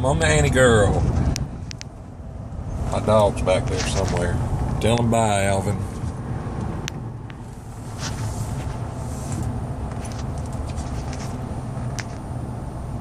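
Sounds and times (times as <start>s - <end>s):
truck engine and tyres rumbling: 0.0s - 13.0s
faint light ticks: 1.3s - 1.9s.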